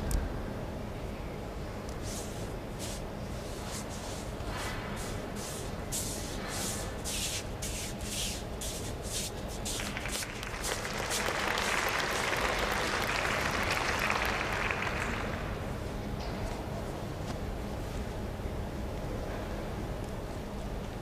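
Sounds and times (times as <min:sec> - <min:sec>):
audience applauding: 0:09.7 - 0:15.6.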